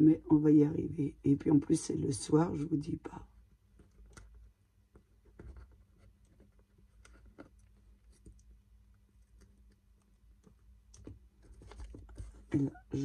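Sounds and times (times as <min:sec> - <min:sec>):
fingers tapping and scraping cardboard: 0:03.6 - 0:08.5, 0:09.2 - 0:12.8.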